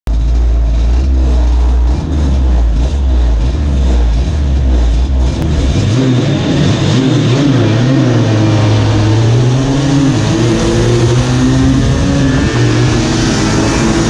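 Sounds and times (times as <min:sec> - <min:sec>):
two-stroke scooter engines idling: 0:00.1 - 0:05.5.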